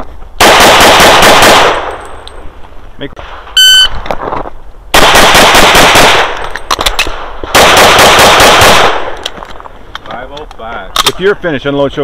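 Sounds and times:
pistol shots in rapid strings: 0.4 - 1.9, 5.0 - 6.4, 7.5 - 9.1.

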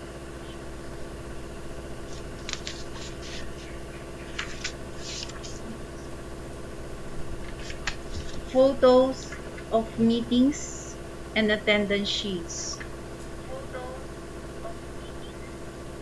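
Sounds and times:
electrical hum: 0.0 - 16.0
short scratchy noises: 2.0 - 5.8.

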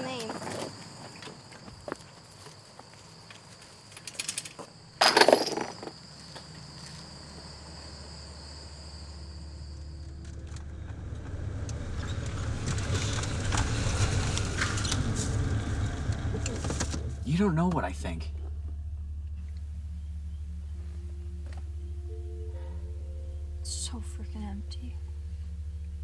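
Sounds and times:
insects chirping: 0.0 - 26.0
low rumble: 9.0 - 26.0
crackles: 9.8 - 21.8.

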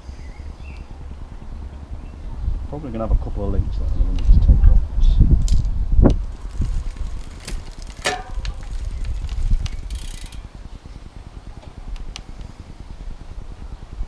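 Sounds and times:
bicycle chain running over gears: 5.4 - 10.6.

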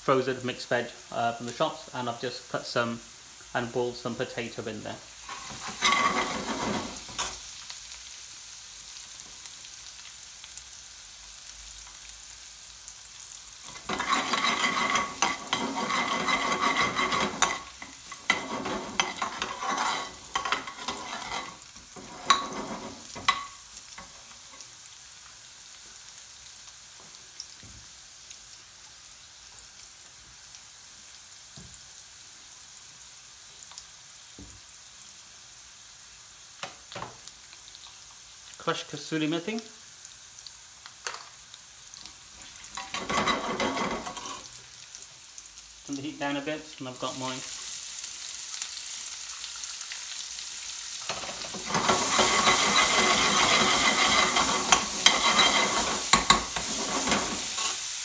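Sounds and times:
garlic sizzling in hot oil: 0.0 - 58.0
metal spoon scraping pan: 5.2 - 7.4, 13.7 - 23.5, 42.7 - 44.5, 51.1 - 57.9.

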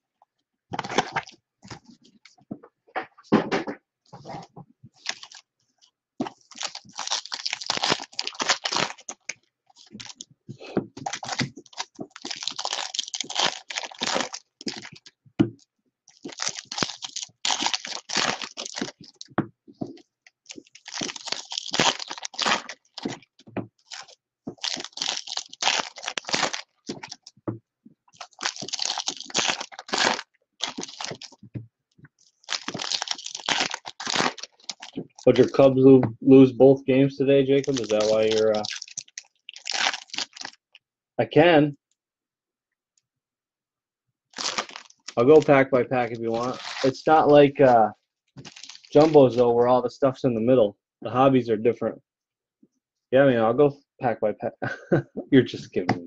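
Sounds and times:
foil wrappers crinkling and tearing: 5.0 - 5.4, 6.2 - 10.2, 11.0 - 15.1, 16.1 - 19.3, 20.4 - 27.3, 28.2 - 31.4, 32.3 - 35.6, 37.5 - 40.6, 44.4 - 47.2, 48.4 - 49.4.

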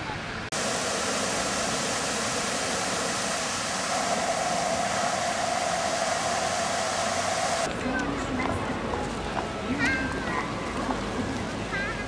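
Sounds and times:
fountain water splashing: 0.3 - 7.7
steady hum: 0.5 - 7.7.

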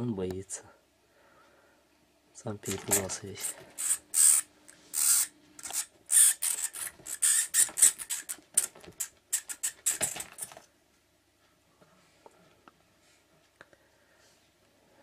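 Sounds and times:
cats scuffling with mouse: 2.7 - 3.8, 7.7 - 10.7.

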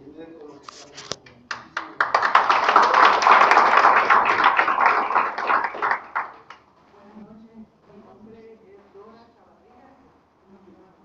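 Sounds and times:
audience applauding: 1.5 - 6.6.

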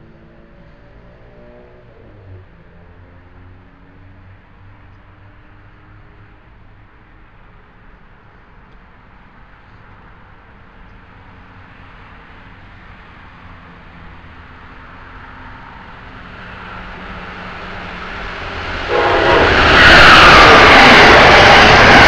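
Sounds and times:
train approaching rumble: 10.3 - 22.0.

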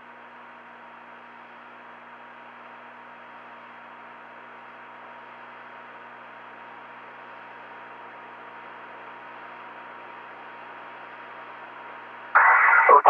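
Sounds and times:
audio line hiss and hum: 12.4 - 13.0
man's voice: 12.4 - 13.0.

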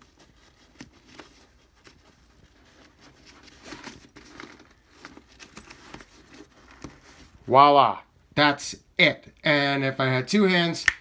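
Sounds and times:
fabric rustling: 0.0 - 7.5.

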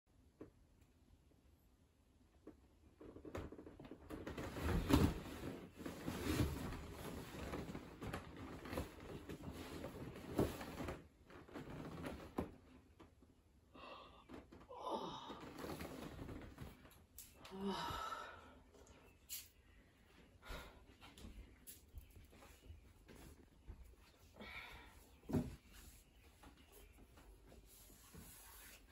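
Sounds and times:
leather sofa creaking: 3.0 - 12.8, 15.3 - 17.0
clothes rustling: 3.0 - 13.2, 15.3 - 17.4, 19.3 - 28.9.

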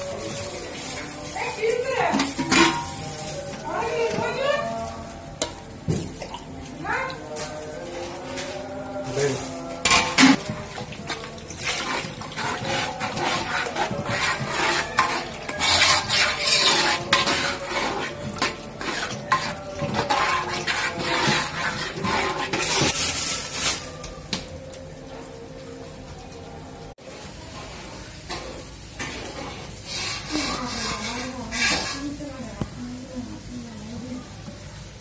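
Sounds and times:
metal spoon stirring in metal pot: 0.0 - 24.2, 29.0 - 32.4.

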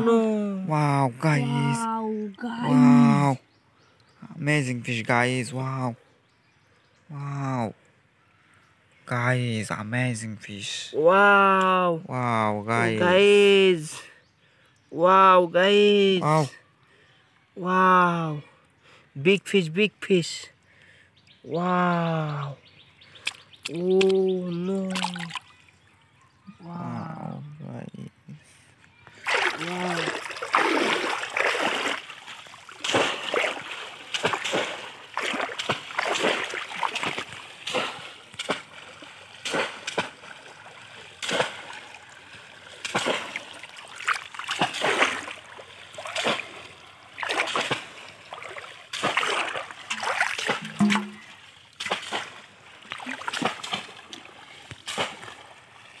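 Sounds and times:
fish traps splashing into water: 24.8 - 25.7, 29.2 - 56.0.

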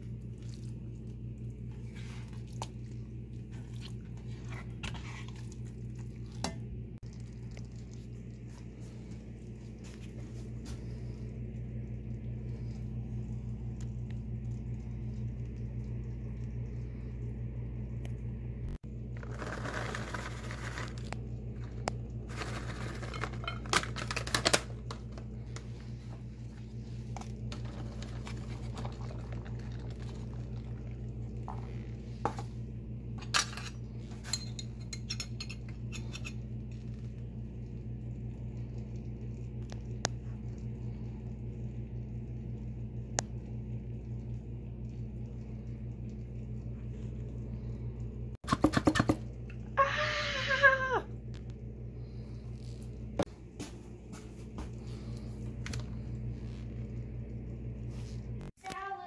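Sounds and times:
steady low hum: 0.0 - 59.0
tongs clinking on bowl: 33.2 - 36.4.

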